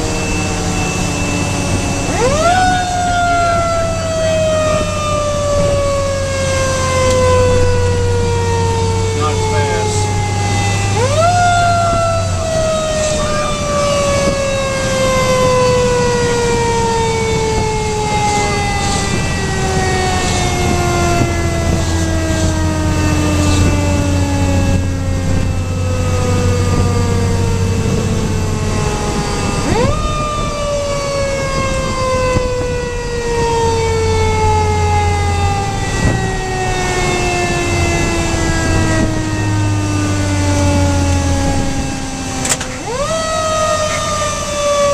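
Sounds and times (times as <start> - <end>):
engine droning: 0.0 - 44.9.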